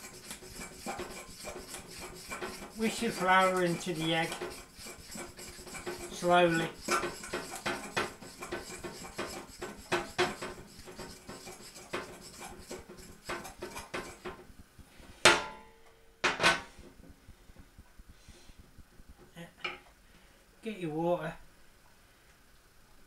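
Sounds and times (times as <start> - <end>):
fork clinking and scraping a bowl: 0.0 - 14.3.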